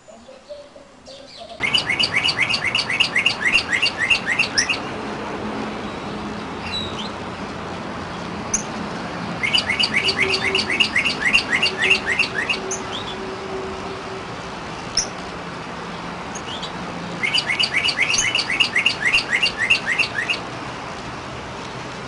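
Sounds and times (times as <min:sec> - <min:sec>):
songbird whistling: 0:00.2 - 0:04.9, 0:09.4 - 0:13.3, 0:16.4 - 0:20.4.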